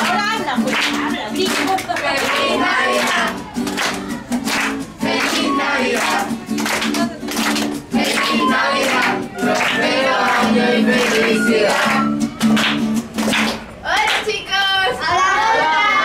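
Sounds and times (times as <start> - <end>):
strummed acoustic guitar: 0.0 - 13.8
children clapping: 0.0 - 14.4
group singing: 1.4 - 12.2.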